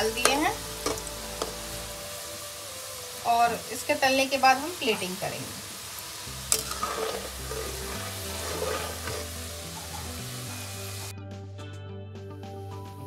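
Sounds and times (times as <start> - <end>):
background music with low notes: 0.0 - 5.2, 6.2 - 13.0
dough sizzling in hot oil: 0.0 - 11.1
metal spatula stirring: 6.4 - 11.1.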